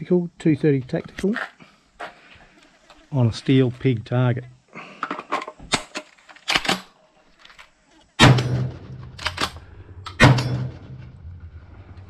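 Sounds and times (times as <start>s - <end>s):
shotgun action clacking: 8.2s - 10.8s
shotgun blasts: 8.2s - 11.1s.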